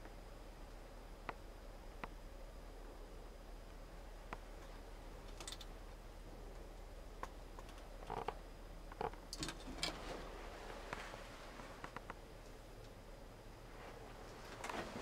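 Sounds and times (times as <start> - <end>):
low steady hum: 0.0 - 15.0
faint clicks and knocks: 2.0 - 2.2, 3.6 - 5.7, 6.5 - 10.0, 10.9 - 13.0.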